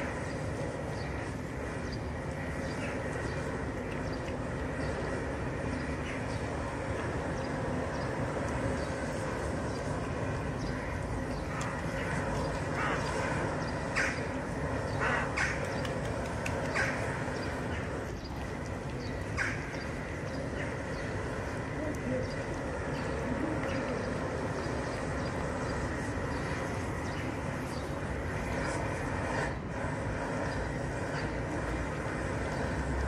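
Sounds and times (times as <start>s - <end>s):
outdoor background hum: 0.0s - 33.0s.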